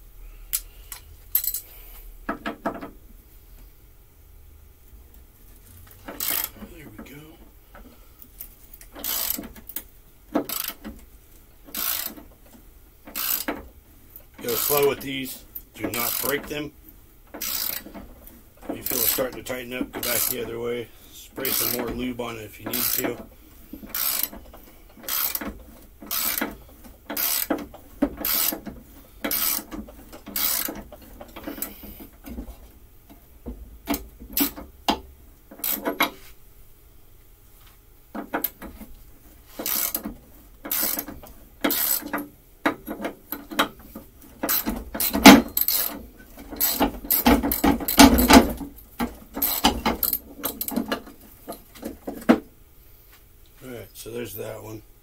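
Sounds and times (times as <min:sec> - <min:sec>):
ratchet wrench clicking: 0:00.5 - 0:01.7, 0:06.0 - 0:06.6, 0:08.8 - 0:09.8, 0:10.4 - 0:10.9, 0:11.7 - 0:12.3, 0:13.1 - 0:13.6, 0:14.4 - 0:15.1, 0:15.9 - 0:16.5, 0:17.4 - 0:18.0, 0:18.8 - 0:19.3, 0:20.0 - 0:20.5, 0:21.4 - 0:22.0, 0:22.7 - 0:23.1, 0:23.8 - 0:27.6, 0:28.2 - 0:28.6, 0:29.2 - 0:30.8, 0:35.6 - 0:36.1, 0:39.6 - 0:40.0, 0:40.7 - 0:42.2, 0:44.4 - 0:46.0, 0:46.6 - 0:48.3, 0:49.4 - 0:50.8.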